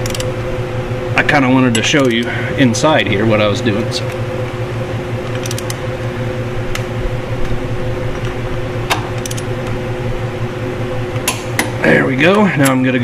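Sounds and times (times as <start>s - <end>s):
torque wrench clicking: 0.0s - 0.3s, 1.7s - 2.3s, 5.2s - 5.8s, 8.9s - 9.7s
steady low hum: 0.0s - 13.0s.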